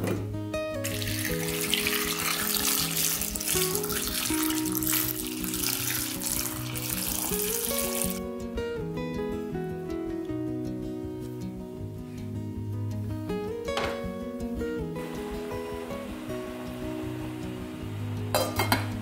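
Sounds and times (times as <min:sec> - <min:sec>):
soft plucked background music: 0:00.0 - 0:19.0
water pouring into pot: 0:00.8 - 0:08.2.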